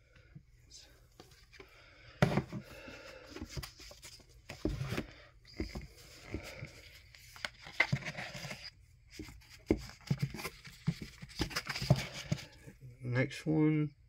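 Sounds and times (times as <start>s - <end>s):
paper and cardboard rustling: 3.2s - 12.6s.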